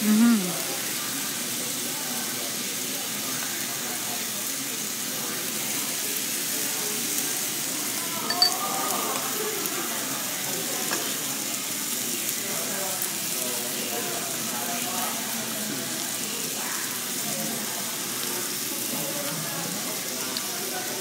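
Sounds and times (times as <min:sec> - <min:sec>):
faint restaurant chatter: 0:00.0 - 0:21.0
meat sizzling on a grill: 0:00.0 - 0:21.0
sharp clink: 0:08.3 - 0:08.6.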